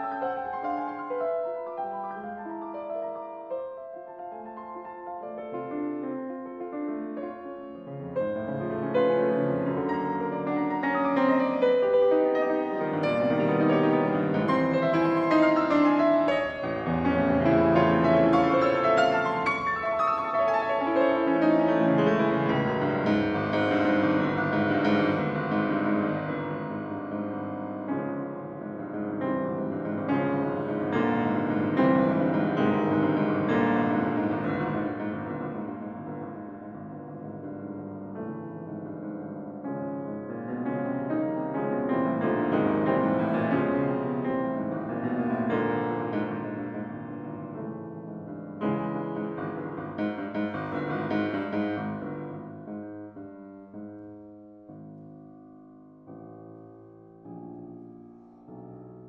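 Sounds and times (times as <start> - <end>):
solo classical piano chords: 0.0 - 59.0.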